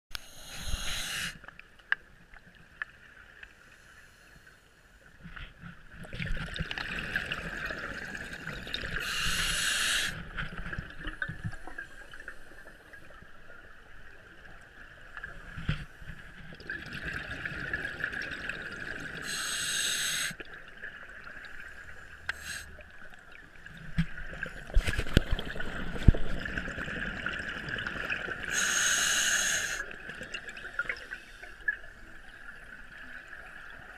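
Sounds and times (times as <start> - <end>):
regulator inhale hiss: 0.1 - 1.5, 9.0 - 10.2, 19.2 - 20.4, 21.8 - 22.8, 28.5 - 29.9
exhaled bubbles gurgling: 6.0 - 12.3, 22.8 - 33.9.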